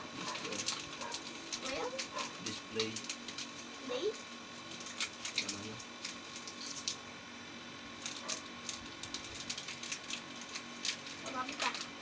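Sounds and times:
crisp snacks crunching: 0.2 - 3.8, 4.7 - 7.0, 8.0 - 12.0
plastic packets crinkling: 0.2 - 3.8, 4.6 - 7.0, 8.0 - 12.0.

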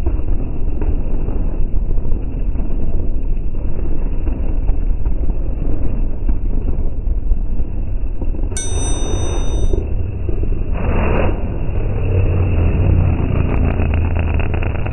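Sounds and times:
dirt bike and quad engines: 10.9 - 14.9.

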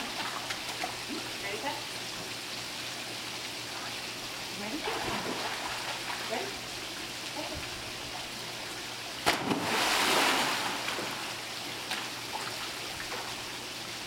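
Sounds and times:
fountain jets trickling: 0.0 - 4.8, 5.9 - 9.2
dog splashing into pool: 4.8 - 6.6, 9.2 - 13.4.

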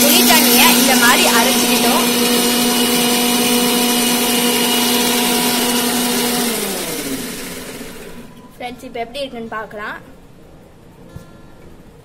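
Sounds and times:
mixer grinder motor whining: 0.0 - 8.4.

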